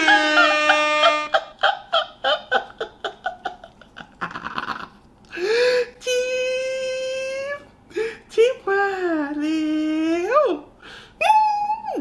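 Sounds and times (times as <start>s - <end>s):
man laughing: 0.0s - 5.0s.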